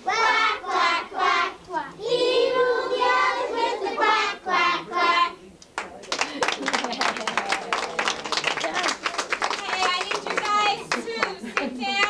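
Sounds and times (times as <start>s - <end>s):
young children singing: 0.0s - 5.5s.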